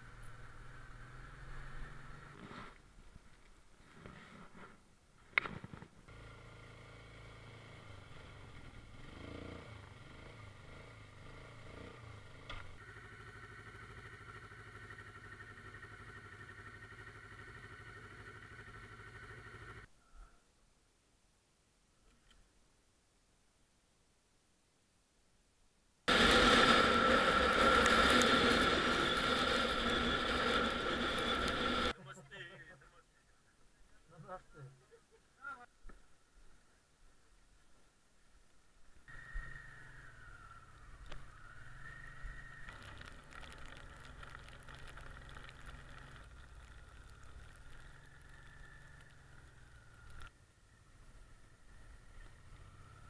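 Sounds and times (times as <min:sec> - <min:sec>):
wind and road noise: 0:00.0 - 0:19.9, 0:26.1 - 0:32.7, 0:35.9 - 0:53.0
motorcycle engine running: 0:06.1 - 0:19.9, 0:26.1 - 0:31.9
steady whine: 0:26.1 - 0:32.0.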